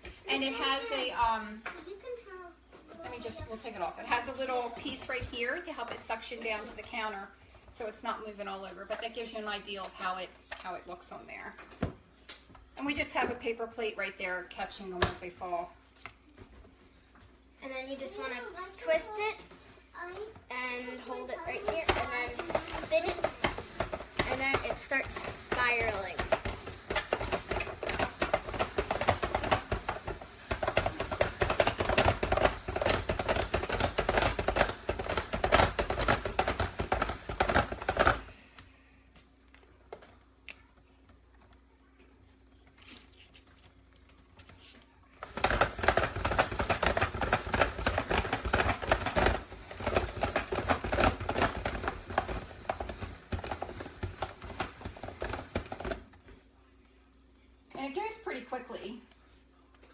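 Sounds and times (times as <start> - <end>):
hand-crank spiralizer crunching: 21.5 - 38.3, 45.2 - 56.1.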